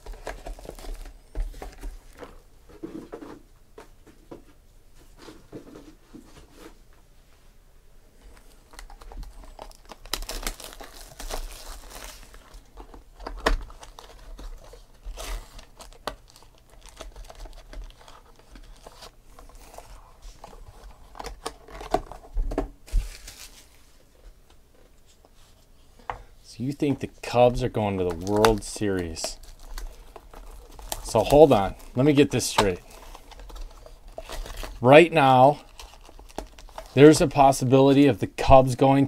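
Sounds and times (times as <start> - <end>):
wrapper and cardboard crinkling: 0.0 - 2.4, 8.4 - 24.1, 26.6 - 39.0.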